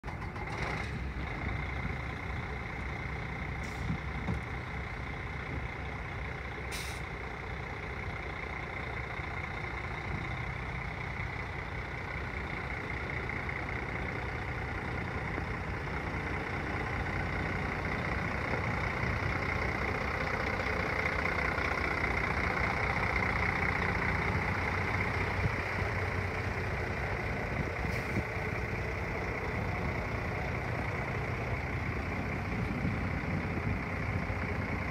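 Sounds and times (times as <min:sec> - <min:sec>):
diesel truck engine idling: 0:00.0 - 0:34.9.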